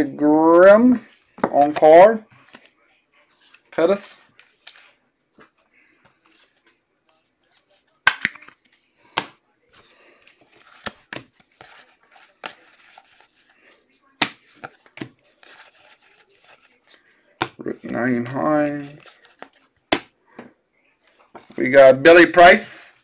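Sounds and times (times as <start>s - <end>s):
card stock and wrappers rustling: 9.7s - 19.8s.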